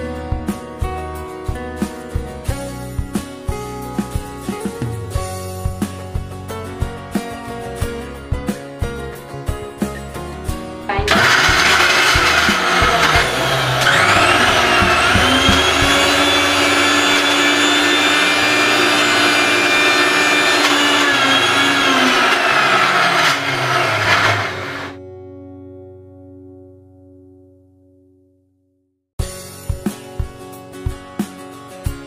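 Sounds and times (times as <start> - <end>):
mixer grinder motor whine: 11.1 - 25.0.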